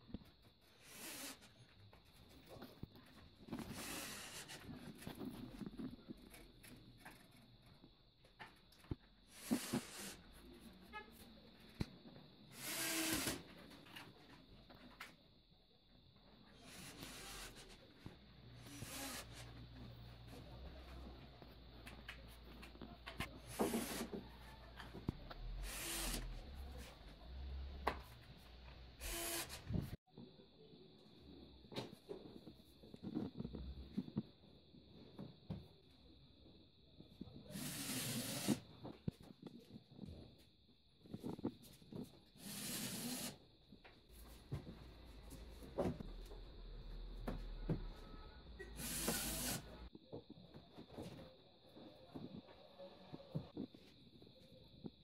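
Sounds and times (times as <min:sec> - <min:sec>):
nail gun air hisses: 0:09.3 - 0:10.2, 0:48.8 - 0:49.7.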